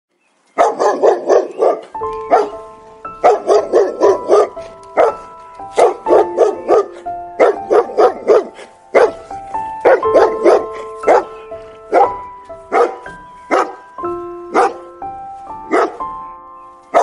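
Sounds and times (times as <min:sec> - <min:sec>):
background music steady notes: 0:00.4 - 0:17.0
dog barking: 0:00.6 - 0:02.6, 0:03.2 - 0:09.2, 0:09.8 - 0:11.3, 0:11.9 - 0:13.8, 0:14.5 - 0:14.8, 0:15.7 - 0:16.0.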